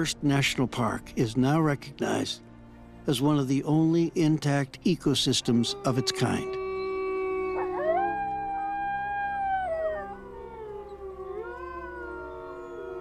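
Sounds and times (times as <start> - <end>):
wolves howling: 5.4 - 13.0.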